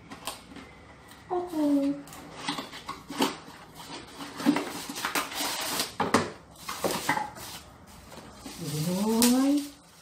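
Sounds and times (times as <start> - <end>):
plastic wrapping crinkling: 6.6 - 10.0.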